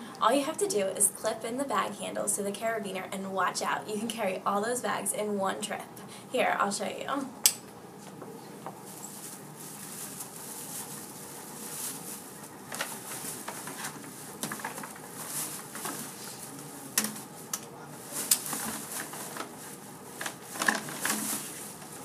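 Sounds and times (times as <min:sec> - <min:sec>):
plastic bags rustling: 0:08.8 - 0:22.0.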